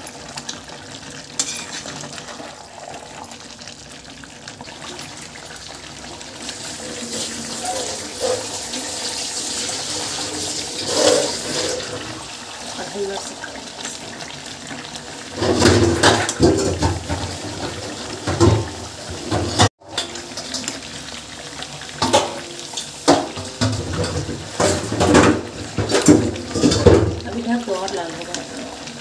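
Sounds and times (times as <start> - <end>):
curry sizzling in a pan: 0.0 - 29.0
steel ladle scraping a pan: 1.4 - 2.3, 6.8 - 12.2.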